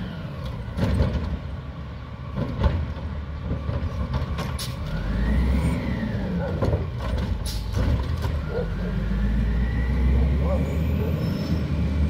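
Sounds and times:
diesel engine revving: 3.5s - 12.0s.

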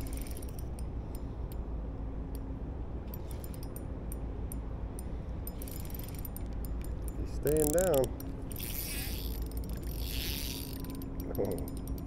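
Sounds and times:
fishing reel clicking: 0.0s - 0.8s, 5.5s - 12.0s
steady low rumble: 0.0s - 12.0s.

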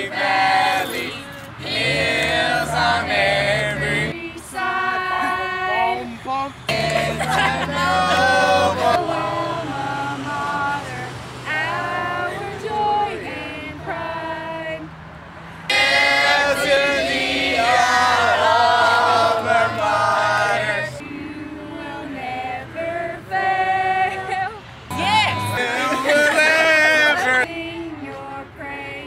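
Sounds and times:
group singing in long notes: 0.0s - 14.9s, 15.6s - 29.0s.

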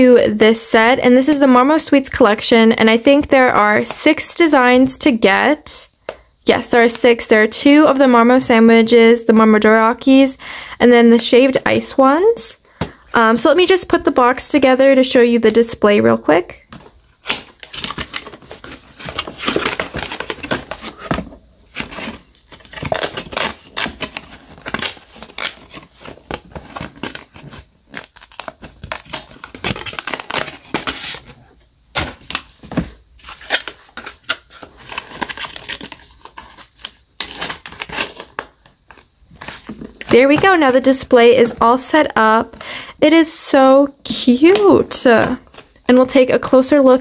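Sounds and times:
cardboard rustling and crinkling: 16.6s - 42.6s.

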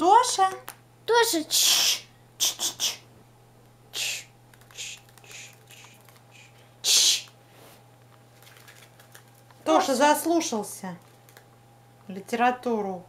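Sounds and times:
book pages rustling: 7.6s - 9.7s.

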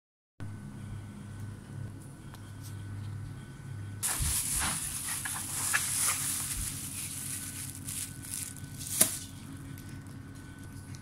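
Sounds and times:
plastic bags crinkling: 4.0s - 10.2s.

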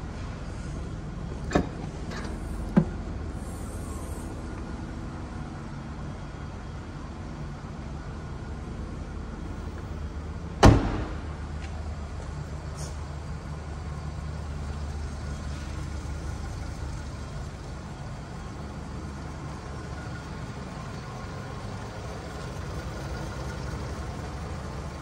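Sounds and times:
tailgate shutting thump: 10.6s - 11.4s.

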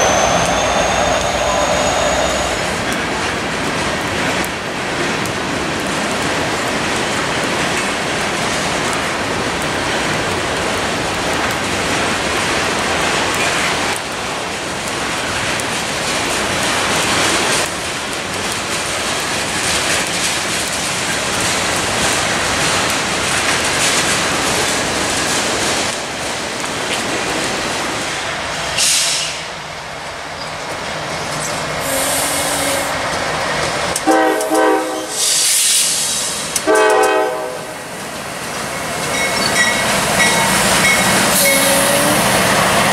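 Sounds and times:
freight train rumbling past: 0.0s - 42.9s
locomotive horn blasts: 31.8s - 33.0s, 34.0s - 35.1s, 36.7s - 37.7s.

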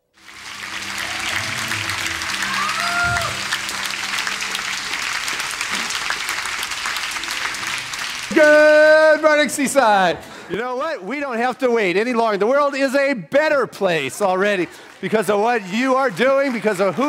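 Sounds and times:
music playing: 0.0s - 10.3s
congregation applauding: 0.0s - 11.3s, 14.1s - 17.0s.

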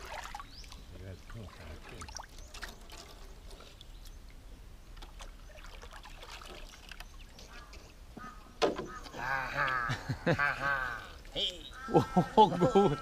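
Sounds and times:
water trickling and dripping: 0.0s - 11.9s
knocks on wooden canoe: 8.6s - 9.0s.

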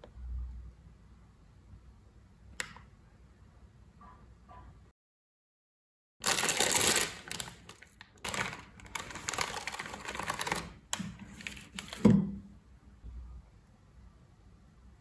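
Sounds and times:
plastic packet rustling: 6.2s - 12.1s.

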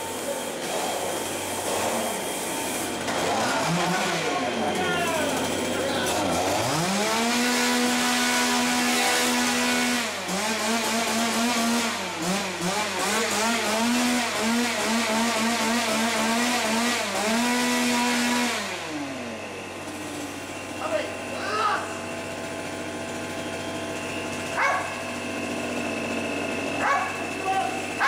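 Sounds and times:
engine revving: 0.0s - 28.0s.

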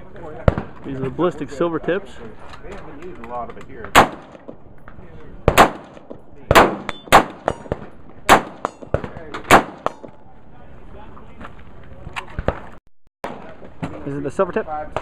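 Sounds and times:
rifle shots: 3.9s - 4.4s, 5.4s - 10.0s.

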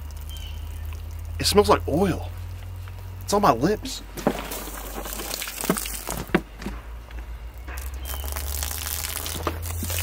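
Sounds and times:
low steady rumble: 0.0s - 10.0s
plastic bottle crinkling and knocking: 4.0s - 6.8s, 7.6s - 10.0s.

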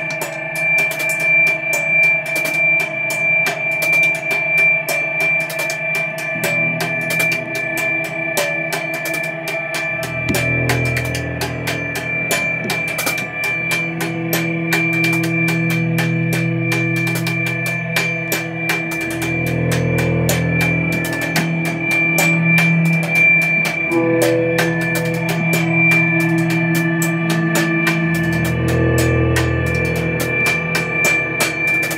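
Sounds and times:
drum kit with rapid cymbals: 0.0s - 31.9s
high held tone: 0.0s - 31.9s
low bass notes: 6.3s - 31.9s.

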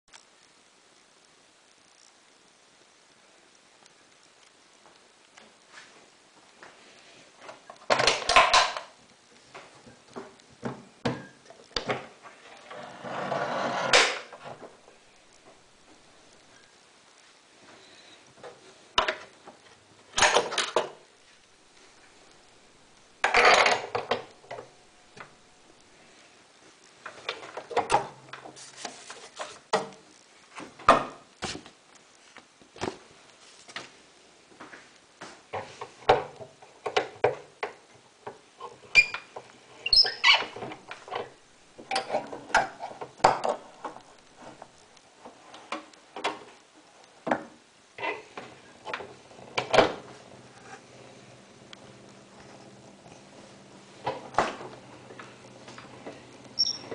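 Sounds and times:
scraping or rustling: 12.2s - 14.9s, 27.1s - 29.7s.

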